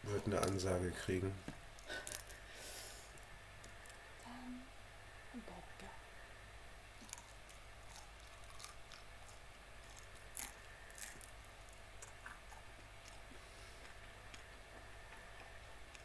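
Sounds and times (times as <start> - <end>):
person chewing crunchy food: 7.0 - 16.0.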